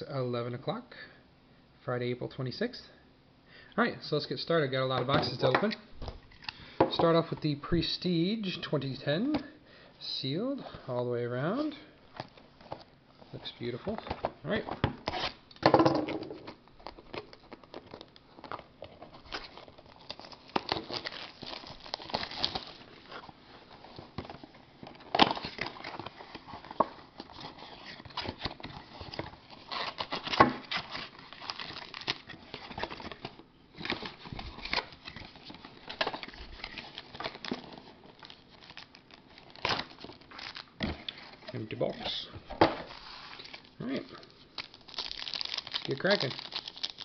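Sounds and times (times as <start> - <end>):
plastic wrap crinkling: 16.3 - 47.0.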